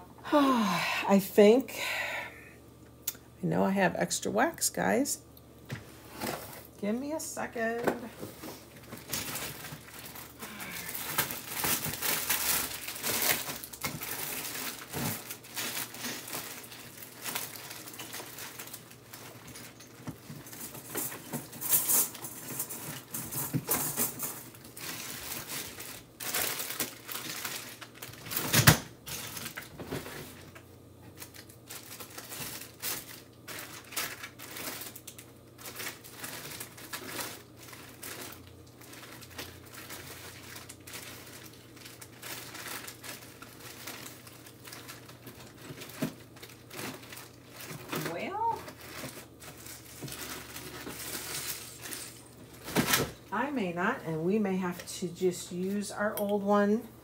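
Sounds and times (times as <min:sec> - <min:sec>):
small items clattering: 0:06.1 - 0:53.5
packaging crinkling: 0:08.5 - 0:53.2.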